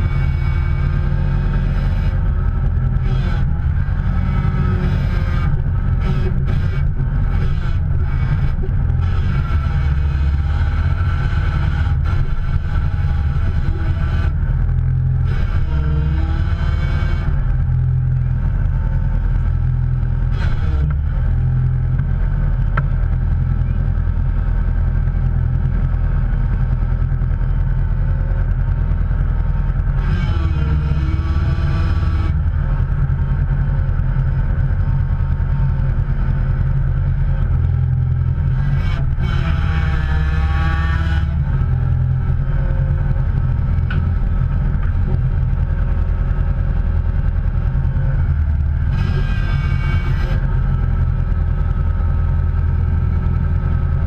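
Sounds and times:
motor vehicle low rumble: 0.0s - 54.0s.

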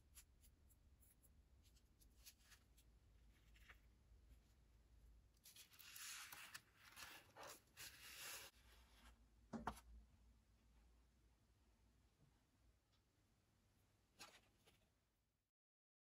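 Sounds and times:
paper rustling and scraping: 5.4s - 9.0s.

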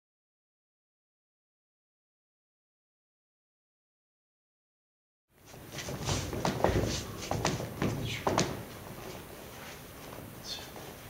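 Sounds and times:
dance shoes on wooden floor: 5.4s - 11.0s.

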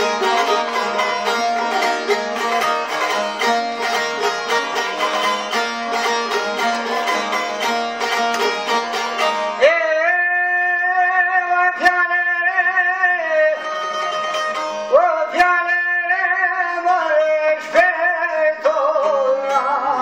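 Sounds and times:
plucked long-necked lutes: 0.0s - 20.0s.

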